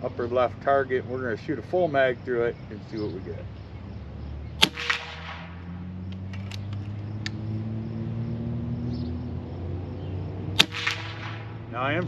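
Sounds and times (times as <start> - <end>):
air rifle shot crack: 4.6 - 5.7, 10.6 - 11.7
light clicks: 6.1 - 7.4.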